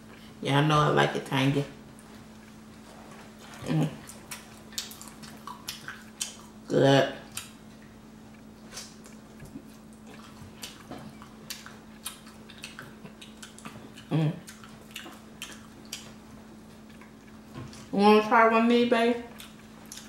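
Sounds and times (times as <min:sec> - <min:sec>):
steady low hum: 0:00.0 - 0:20.0
wet chewing clicks and smacks: 0:04.0 - 0:06.6, 0:07.3 - 0:17.4, 0:19.3 - 0:20.0.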